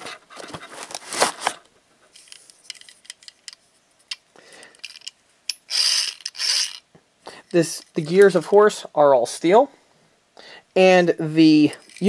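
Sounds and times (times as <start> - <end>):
foam packaging rustling: 0.4 - 3.1.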